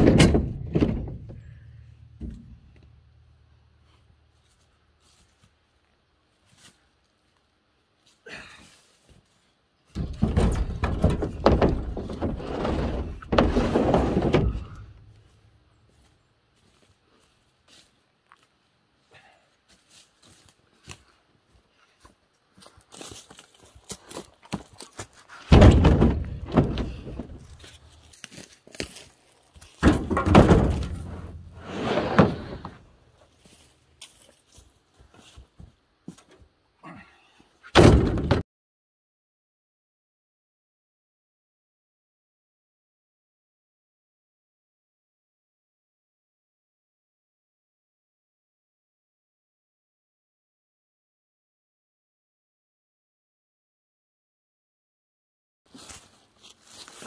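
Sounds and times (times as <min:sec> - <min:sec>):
log thudding onto truck bed: 0:00.0 - 0:02.8, 0:09.9 - 0:15.3, 0:25.4 - 0:27.8, 0:29.7 - 0:32.8, 0:37.7 - 0:38.4
scraping: 0:09.9 - 0:15.5, 0:25.3 - 0:28.5, 0:29.6 - 0:33.7.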